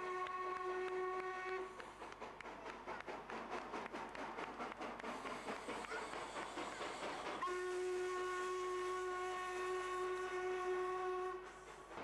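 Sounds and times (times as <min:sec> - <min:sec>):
steam locomotive whistle: 0:00.0 - 0:01.8, 0:07.4 - 0:11.7
steam hissing: 0:01.4 - 0:12.0.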